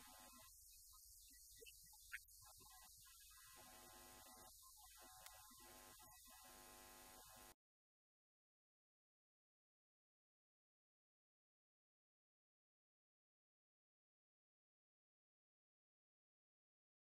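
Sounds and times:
faint click: 5.2 - 5.6.

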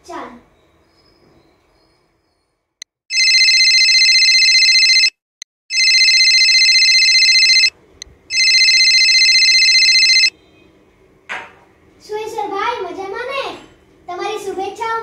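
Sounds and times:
telephone ringing: 3.1 - 7.7, 8.3 - 10.3.

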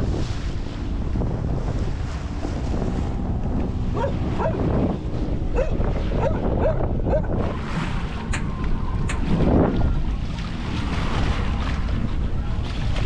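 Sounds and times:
wind rumble on microphone: 0.0 - 13.0
dog barking: 4.0 - 4.6, 5.6 - 7.3.

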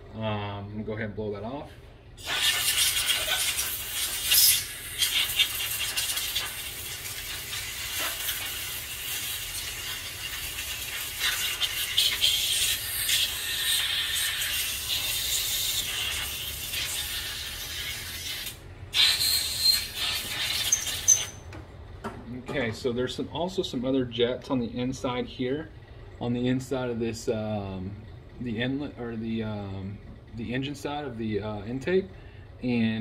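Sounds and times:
compressed air blow gun hissing: 2.2 - 21.4.

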